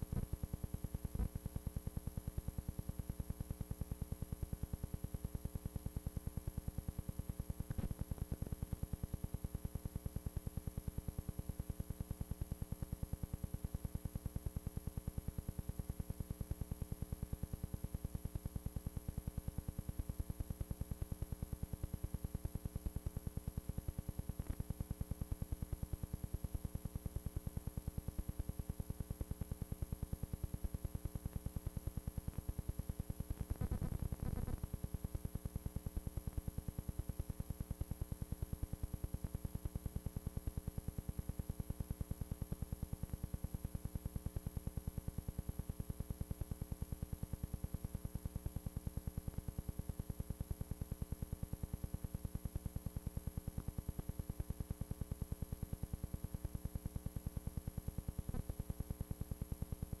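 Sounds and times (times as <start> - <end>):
electrical hum and buzz: 0.0 - 12.4, 30.5 - 39.2.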